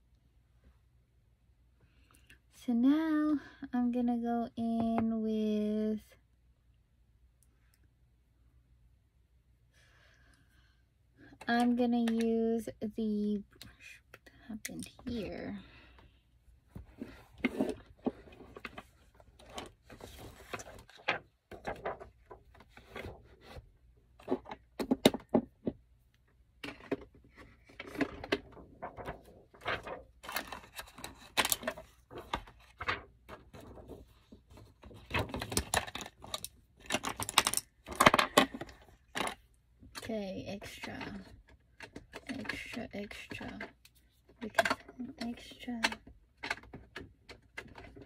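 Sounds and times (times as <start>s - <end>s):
clicks and rattles of small objects: 26.6s - 34.0s, 34.8s - 48.0s.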